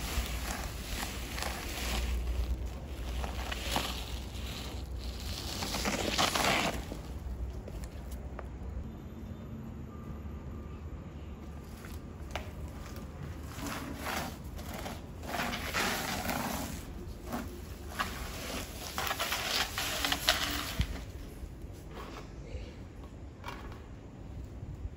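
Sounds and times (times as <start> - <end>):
flower pot scraping on concrete: 0.0 - 8.0, 12.7 - 21.2
plant rustling: 0.0 - 8.6, 11.5 - 21.8.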